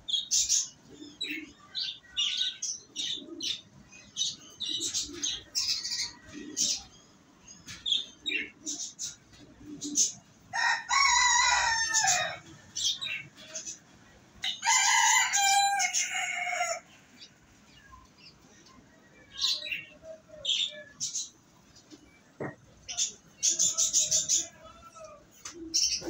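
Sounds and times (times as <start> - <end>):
rooster crowing: 10.5 - 12.4, 14.6 - 16.8.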